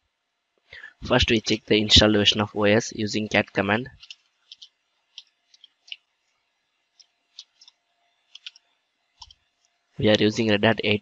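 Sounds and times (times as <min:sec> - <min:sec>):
keyboard keys clicking: 0:08.3 - 0:08.6.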